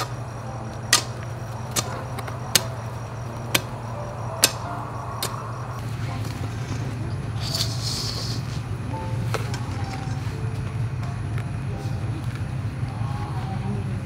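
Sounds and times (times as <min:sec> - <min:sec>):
steady low hum: 0:00.0 - 0:14.0
hoe chopping into dry soil: 0:00.9 - 0:03.8, 0:04.4 - 0:05.4.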